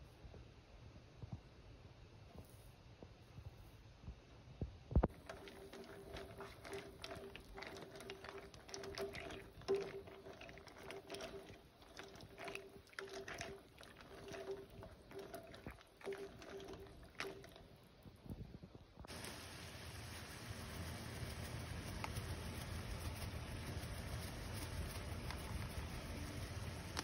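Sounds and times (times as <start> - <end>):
tongs stirring in water: 5.1 - 17.7, 19.1 - 27.0
water boiling and bubbling: 5.1 - 18.4, 19.0 - 27.0
faint pulsing hum: 18.1 - 27.0.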